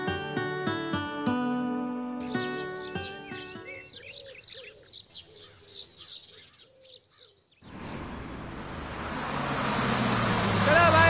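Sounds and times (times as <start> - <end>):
plucked guitar music: 0.0 - 3.9
songbirds chirping: 0.0 - 11.0.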